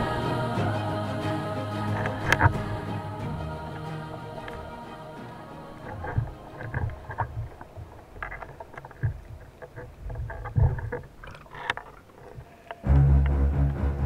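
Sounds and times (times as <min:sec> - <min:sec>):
background music: 0:00.0 - 0:07.6, 0:12.9 - 0:14.0
underwater clicks and thumps: 0:05.8 - 0:12.8.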